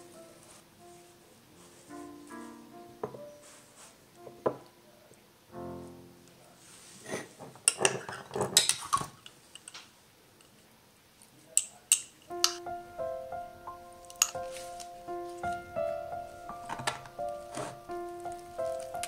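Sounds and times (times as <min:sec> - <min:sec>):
soft piano music: 0:00.0 - 0:06.8, 0:12.3 - 0:19.0.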